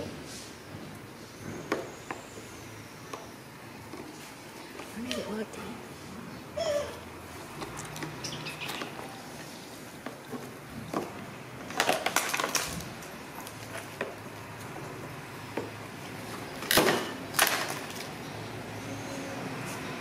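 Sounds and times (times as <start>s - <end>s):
plastic toy truck clattering: 11.7s - 12.9s, 16.6s - 18.1s.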